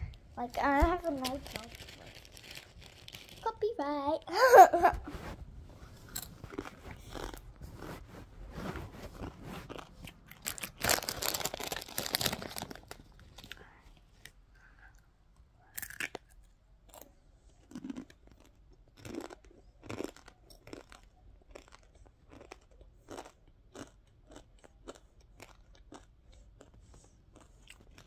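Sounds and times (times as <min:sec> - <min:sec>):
person chewing crunchy food: 0:06.0 - 0:13.6, 0:15.8 - 0:28.0.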